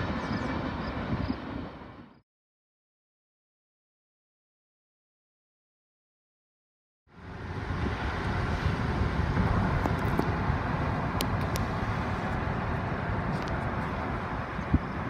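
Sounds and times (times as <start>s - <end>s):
car road and wind noise: 0.0s - 2.2s, 7.1s - 15.0s.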